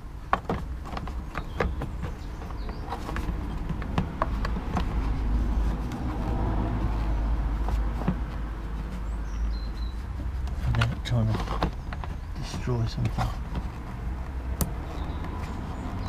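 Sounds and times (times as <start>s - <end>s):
plastic clicks and knocks: 0.2s - 5.1s, 10.4s - 15.5s.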